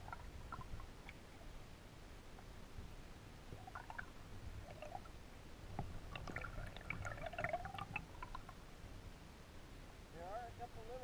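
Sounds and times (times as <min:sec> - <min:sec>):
underwater rumble: 0:00.0 - 0:01.7, 0:03.4 - 0:08.7.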